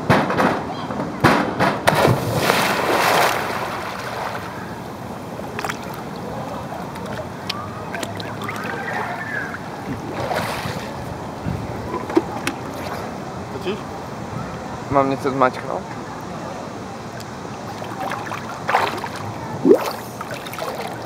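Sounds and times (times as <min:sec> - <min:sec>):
pool water splashing: 0:01.8 - 0:21.0
water lapping: 0:02.0 - 0:13.4, 0:16.9 - 0:21.0.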